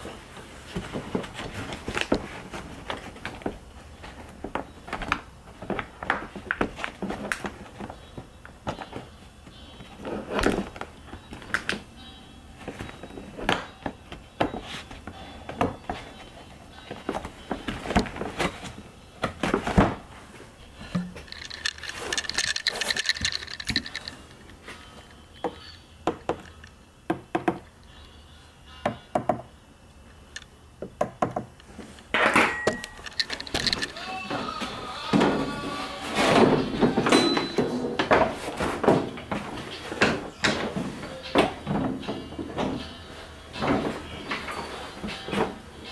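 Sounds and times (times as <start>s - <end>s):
metal parts knocking and rattling: 20.8s - 24.4s, 32.2s - 34.0s
higher tones: 32.2s - 37.9s.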